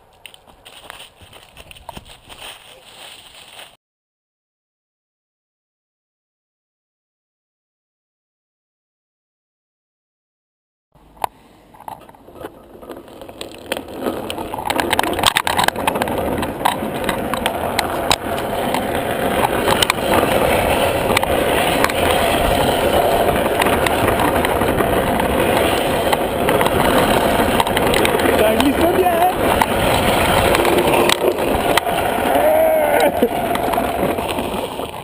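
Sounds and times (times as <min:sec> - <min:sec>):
wheels rolling on asphalt: 0:00.0 - 0:03.7, 0:11.0 - 0:35.0.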